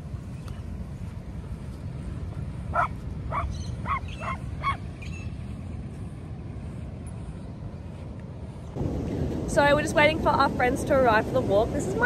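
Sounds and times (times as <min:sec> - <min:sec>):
low steady rumble: 0:00.0 - 0:12.0
dog barking: 0:02.8 - 0:04.8.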